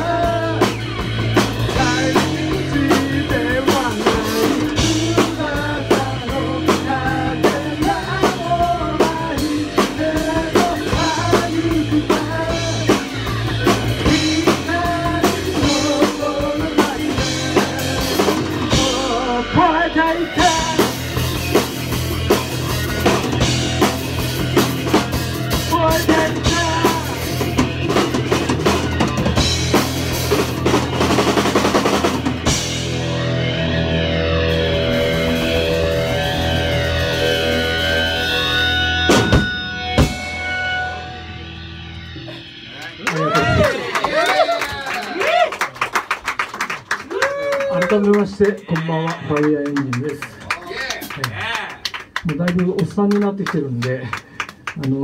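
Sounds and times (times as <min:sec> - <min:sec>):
person singing: 0:00.0 - 0:00.9, 0:01.6 - 0:21.2, 0:25.5 - 0:27.7
drum kit: 0:00.0 - 0:47.7
electric guitar: 0:00.0 - 0:52.2
bass guitar: 0:00.0 - 0:55.0.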